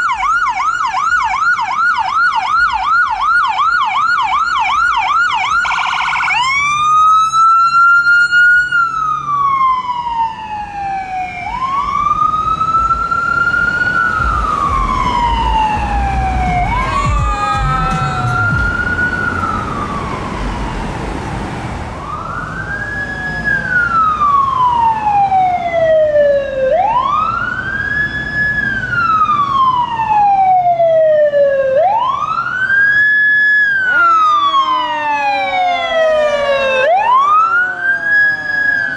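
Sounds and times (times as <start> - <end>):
ambulance siren wailing: 0.0 - 38.9
low engine rumble: 11.4 - 24.8.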